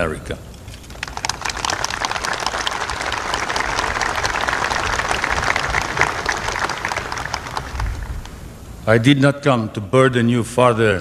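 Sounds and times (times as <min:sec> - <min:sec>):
crowd applauding: 0:00.9 - 0:08.4.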